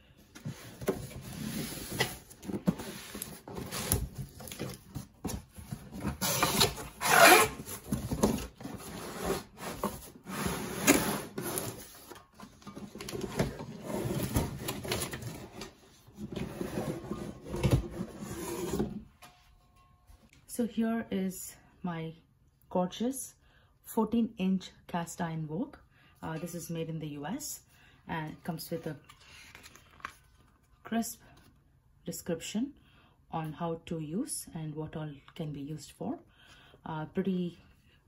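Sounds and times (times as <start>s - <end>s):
cardboard rustling and scraping: 0.3s - 19.1s.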